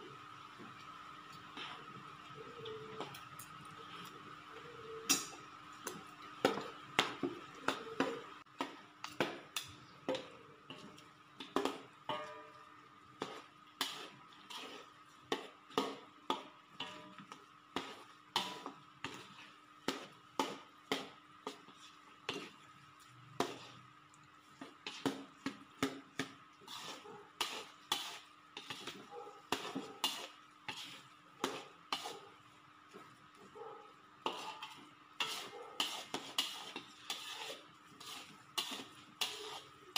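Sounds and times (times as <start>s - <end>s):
spatula scraping a steel wok: 13.2s - 23.9s, 24.6s - 32.4s, 34.2s - 39.9s.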